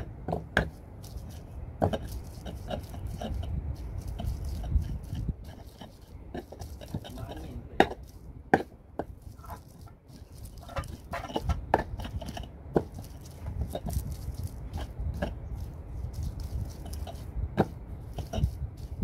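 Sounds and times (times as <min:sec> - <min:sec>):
pestle grinding in stone mortar: 0:00.0 - 0:19.0
stone knocking on stone: 0:07.8 - 0:09.6.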